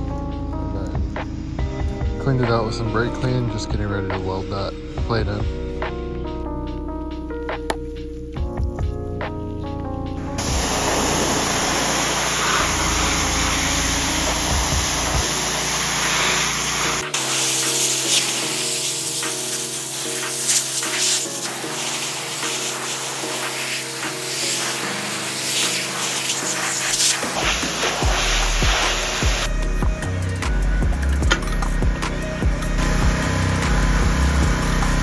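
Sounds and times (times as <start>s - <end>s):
background music: 0.0s - 35.0s
aerosol spray hissing: 10.3s - 29.5s.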